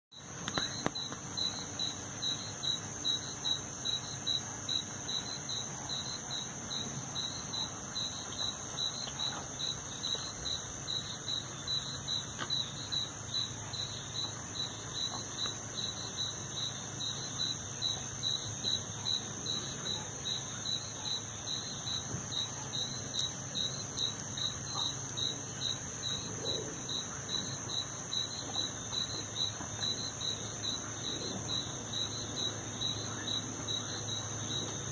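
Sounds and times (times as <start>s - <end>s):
insect chirp pulsing: 0.1s - 34.9s
insect high-pitched trill: 0.1s - 34.9s.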